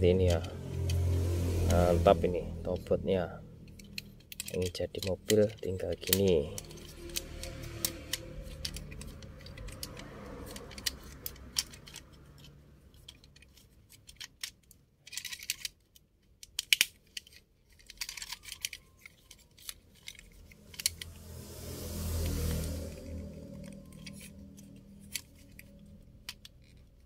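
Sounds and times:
plastic toy parts clicking: 3.7 - 21.0, 23.9 - 27.0.

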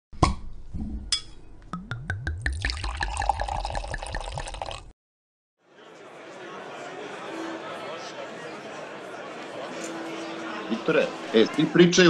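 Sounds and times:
wine pouring into a glass: 2.0 - 4.9.

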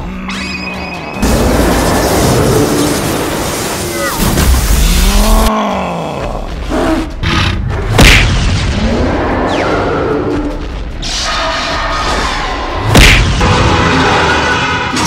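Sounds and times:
monster roars: 1.2 - 7.6.

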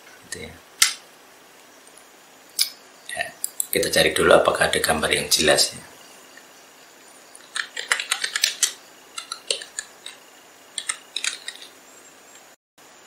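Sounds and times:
keyboard typing: 7.4 - 10.2, 10.8 - 11.7.

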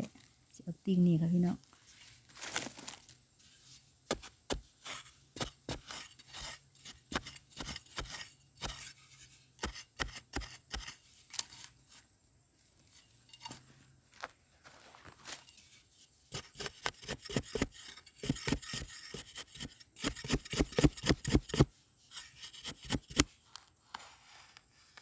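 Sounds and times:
digging tool chopping into soil: 4.0 - 8.9, 9.6 - 11.6, 16.3 - 21.7.

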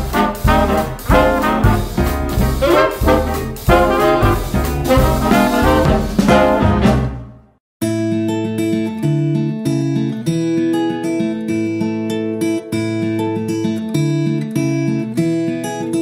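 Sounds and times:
brass swing music: 0.0 - 7.6.

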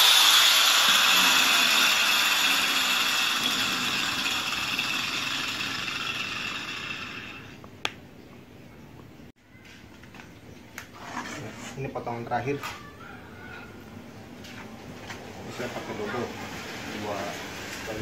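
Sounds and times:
angle grinder spinning down: 0.0 - 7.6.

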